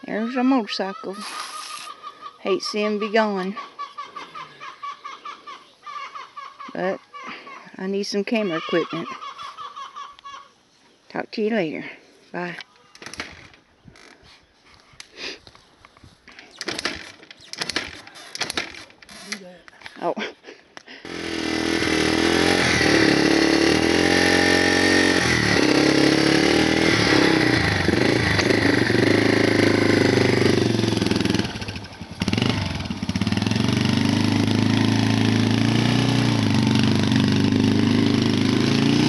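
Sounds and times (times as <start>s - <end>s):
dirt bike engine revving: 21.1s - 39.0s.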